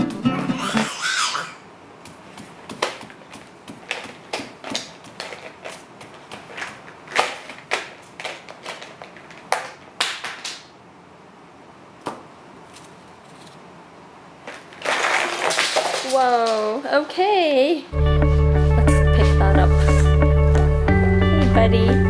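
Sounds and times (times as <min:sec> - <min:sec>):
handling noise: 0:02.0 - 0:10.8, 0:14.4 - 0:16.8.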